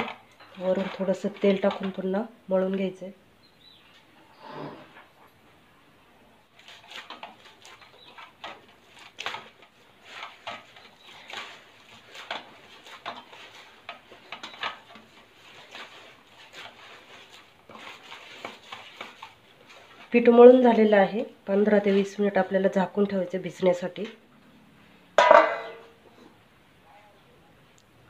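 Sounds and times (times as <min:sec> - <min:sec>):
dough squishing and slapping: 0:06.5 - 0:21.0
steel bowl knocks: 0:25.2 - 0:25.9.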